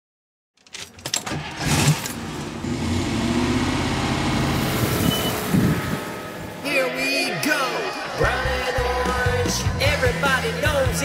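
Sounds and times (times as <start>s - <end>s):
engine starting and idling: 1.0s - 6.6s.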